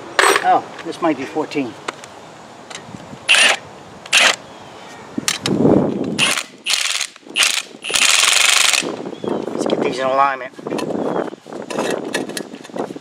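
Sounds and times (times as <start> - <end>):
impact driver spinning a nut: 3.3 - 4.4, 6.2 - 8.8.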